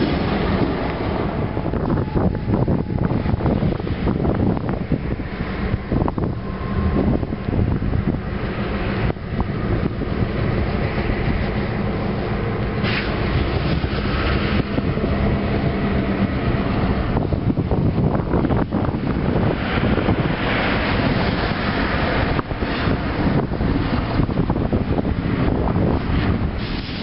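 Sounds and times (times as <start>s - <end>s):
locomotive engine rumble: 0.0s - 27.0s
short hiss: 12.8s - 13.7s, 26.6s - 27.0s.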